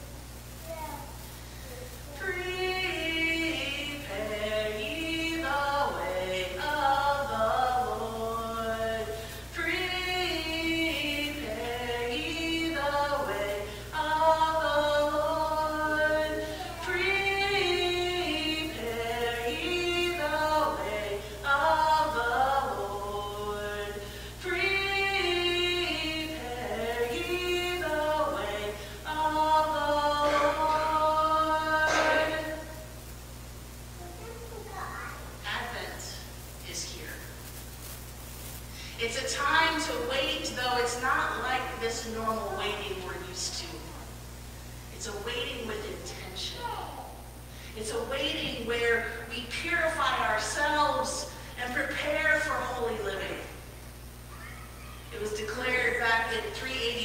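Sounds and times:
voices singing unaccompanied: 2.2 - 32.8
singer breaths: 24.0 - 24.4, 38.7 - 39.0, 47.4 - 47.8.

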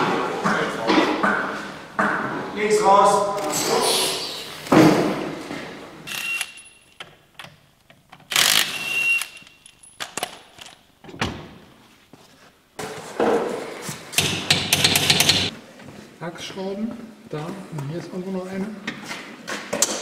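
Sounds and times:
hand tools clicking and clanking: 14.1 - 15.5.

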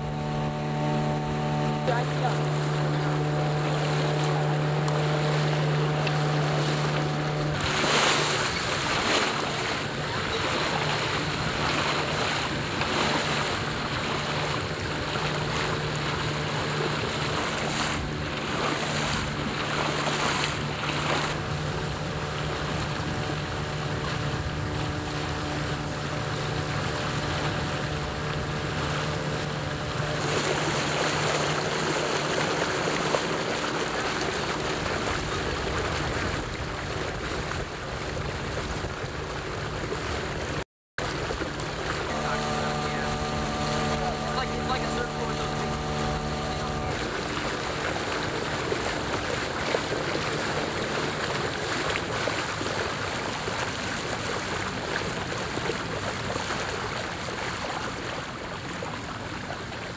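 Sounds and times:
boat motor running: 0.0 - 59.9
water rushing along hull: 0.0 - 59.9
wind noise on microphone: 34.2 - 56.5.

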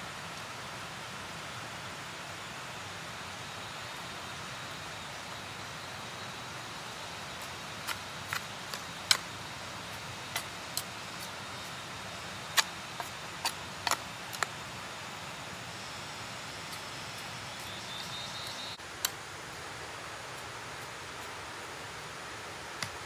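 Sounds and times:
steady background hiss: 0.0 - 23.0.

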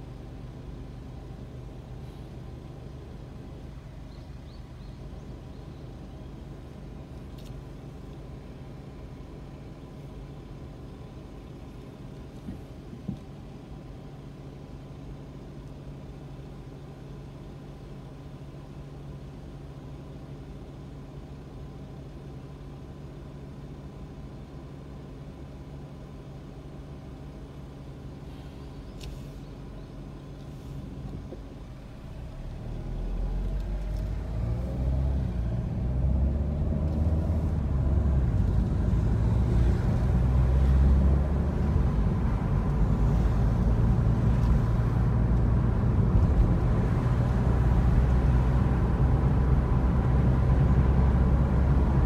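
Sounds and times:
car engine idling: 0.0 - 34.4
car pulling away: 28.3 - 52.0.

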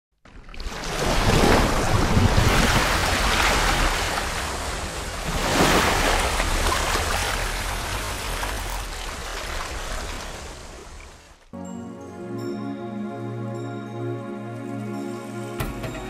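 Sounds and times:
rushing splashing water: 0.3 - 11.5.

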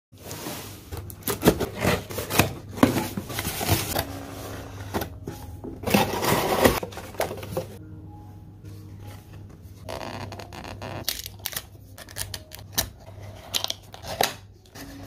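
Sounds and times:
cardboard crackling and rustling: 0.2 - 7.8.

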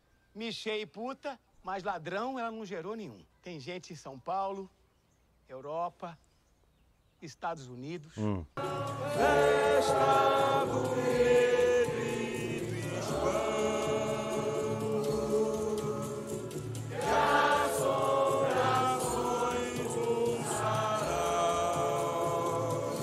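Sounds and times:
crowd singing slow chant: 8.6 - 23.0.

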